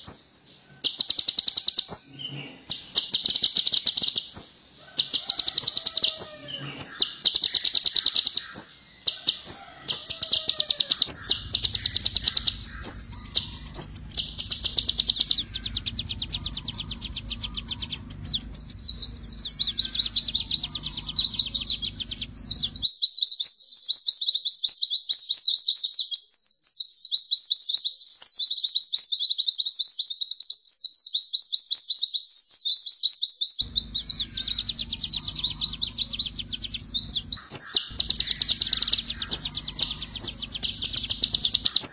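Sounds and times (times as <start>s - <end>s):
bird chirping and trilling: 0.0s - 23.0s, 33.6s - 41.9s
low hum: 8.7s - 22.9s, 33.6s - 41.9s.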